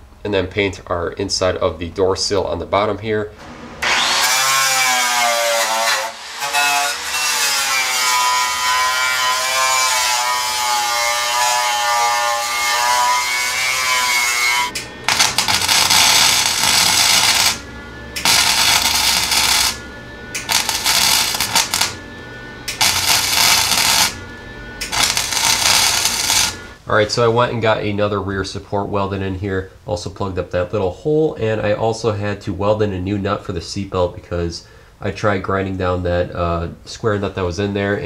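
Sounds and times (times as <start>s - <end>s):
electric power tool whining: 3.4s - 7.4s, 13.8s - 26.8s
electric welder hissing: 3.4s - 26.8s.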